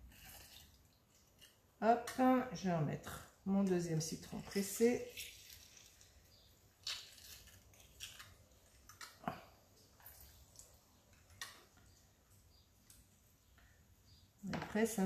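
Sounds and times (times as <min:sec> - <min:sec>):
lime squishing: 0:05.0 - 0:09.2.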